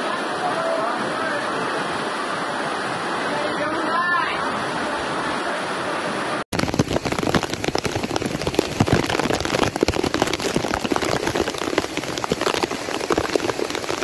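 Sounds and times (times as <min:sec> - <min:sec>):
floodwater rushing: 0:00.0 - 0:14.0
heavy rain pouring: 0:00.0 - 0:14.0.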